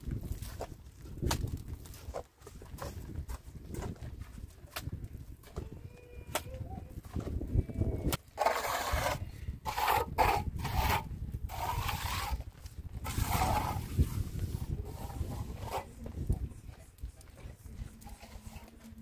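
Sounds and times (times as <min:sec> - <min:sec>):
trowel scraping cement on wall: 0:08.2 - 0:16.1.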